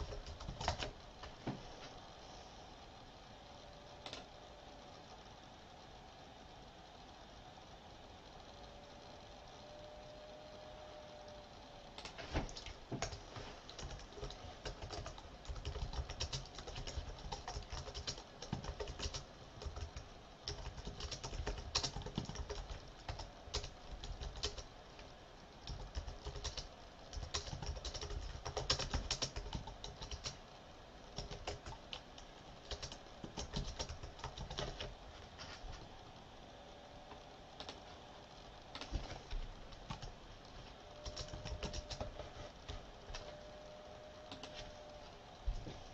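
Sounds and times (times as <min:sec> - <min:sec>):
keyboard typing: 0:00.0 - 0:01.4, 0:04.0 - 0:04.3, 0:12.0 - 0:24.7, 0:25.6 - 0:30.4, 0:31.2 - 0:34.9, 0:37.6 - 0:37.9, 0:38.7 - 0:40.1, 0:40.9 - 0:43.4, 0:44.3 - 0:44.8.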